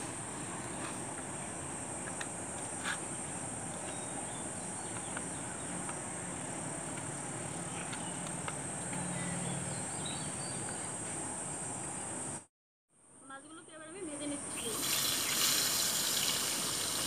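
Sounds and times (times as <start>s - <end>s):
insects chirring: 0.0s - 12.5s.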